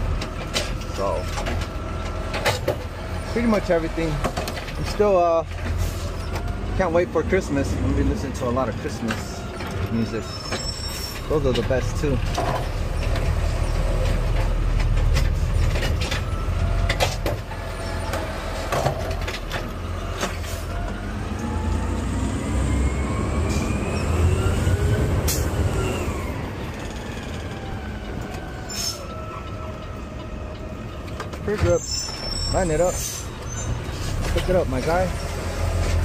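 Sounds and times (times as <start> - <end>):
truck engine rumble and whine: 0.0 - 36.0.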